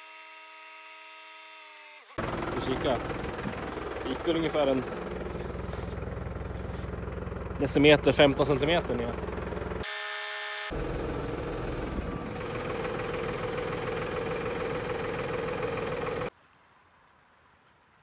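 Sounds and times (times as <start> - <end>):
tractor engine running: 2.2 - 9.9, 10.7 - 16.3.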